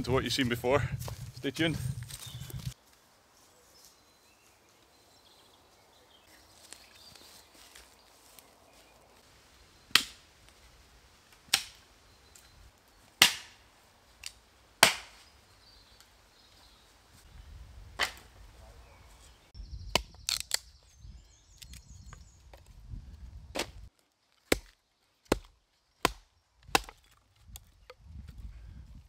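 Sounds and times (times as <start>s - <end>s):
tool striking wood: 24.5s - 27.0s.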